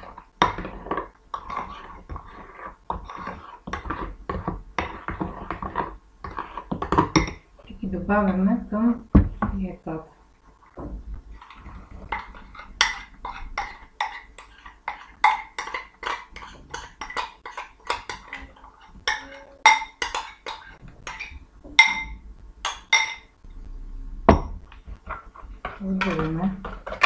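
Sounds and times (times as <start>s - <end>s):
spoon scraping a ceramic bowl: 0.0s - 7.4s, 11.4s - 23.3s, 25.0s - 27.0s.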